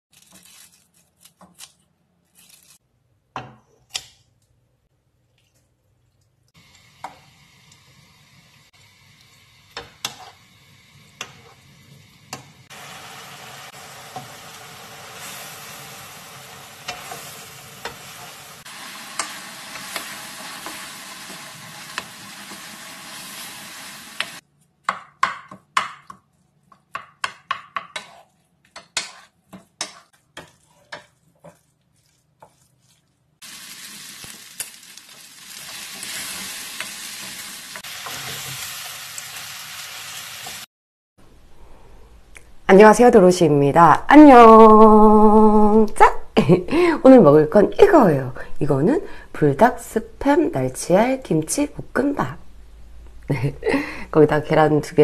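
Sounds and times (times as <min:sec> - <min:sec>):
food sizzling in a pan: 0:06.6 - 0:24.4, 0:27.9 - 0:40.7
wooden spoon scraping a pan: 0:09.8 - 0:10.4, 0:14.0 - 0:23.6, 0:26.0 - 0:33.4, 0:35.2 - 0:39.4.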